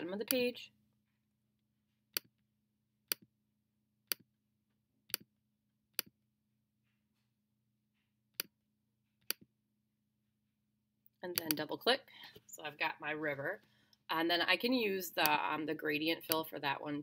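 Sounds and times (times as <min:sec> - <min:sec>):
computer mouse button clicks: 0:11.3 - 0:11.6.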